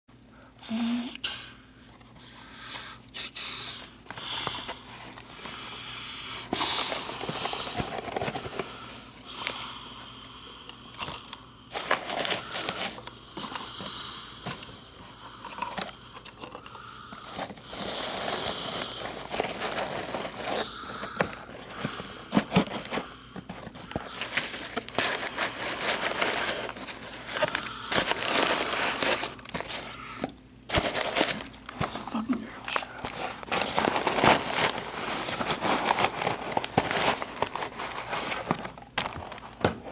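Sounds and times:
packaging rustling and crinkling: 6.5 - 9.6, 10.9 - 39.9.

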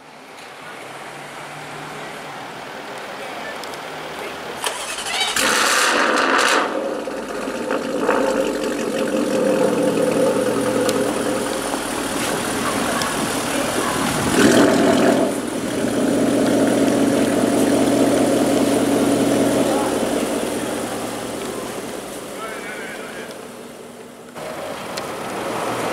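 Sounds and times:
car engine starting and idling: 4.5 - 25.9
engine revving: 4.6 - 23.8.

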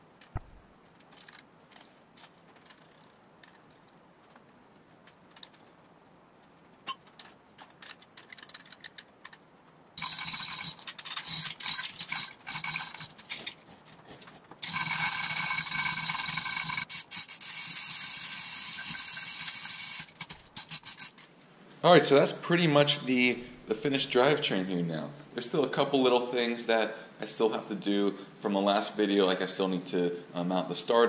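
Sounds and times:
steel chain clattering through hoist: 10.0 - 13.6, 14.6 - 16.9.

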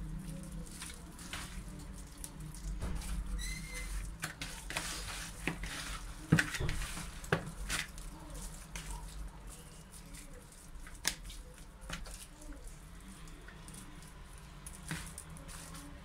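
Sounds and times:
hands squishing wet chicken: 0.0 - 16.0
short high squeak: 3.4 - 3.9.

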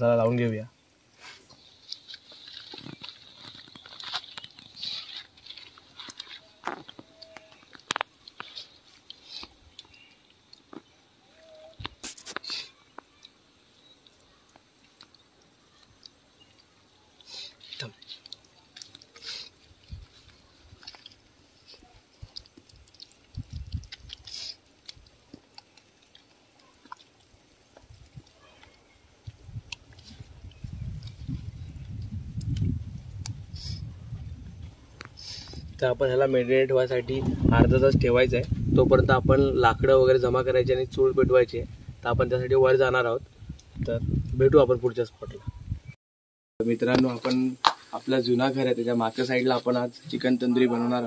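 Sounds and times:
hands squelching marinade: 13.2 - 32.6.

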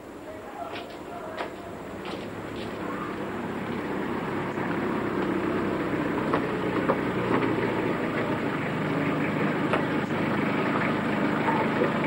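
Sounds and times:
van engine running at low speed: 1.6 - 12.0.

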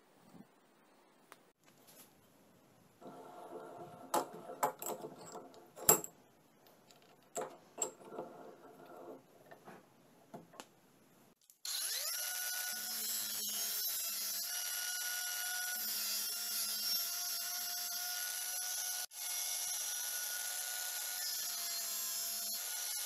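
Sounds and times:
metal clicks and knocks: 4.1 - 6.2, 6.9 - 9.6.

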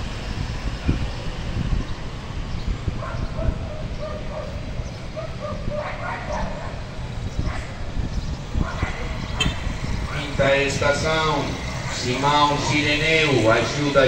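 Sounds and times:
dog yapping: 5.2 - 6.8.

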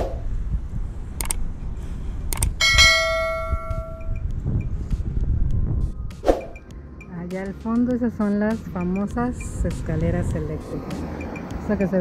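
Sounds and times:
low rumble: 0.0 - 8.3
bell ringing: 2.6 - 4.2.

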